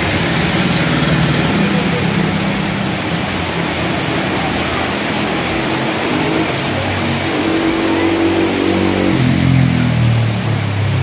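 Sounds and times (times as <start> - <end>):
heavy rain pouring: 0.0 - 11.0
motorbikes through floodwater: 0.0 - 11.0.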